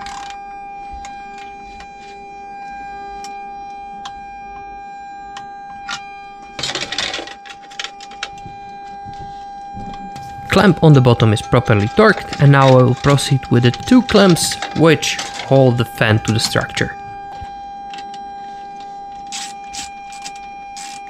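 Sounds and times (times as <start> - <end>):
steady high-pitched hum: 0.0 - 21.0
metal hardware clattering: 11.7 - 16.7.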